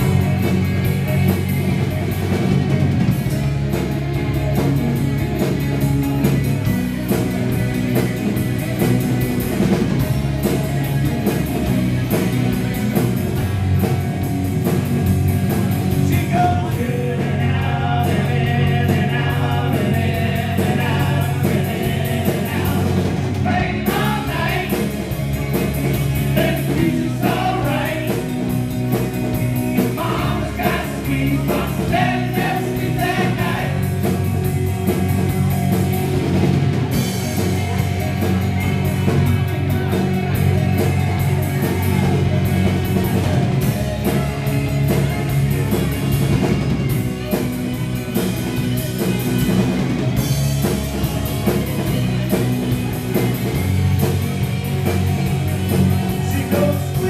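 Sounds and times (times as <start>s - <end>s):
drum kit: 0.0s - 57.0s
electric bass: 0.0s - 57.0s
electric guitars: 0.0s - 57.0s
man singing: 16.0s - 25.0s, 26.3s - 28.5s, 29.8s - 33.9s, 56.1s - 57.0s.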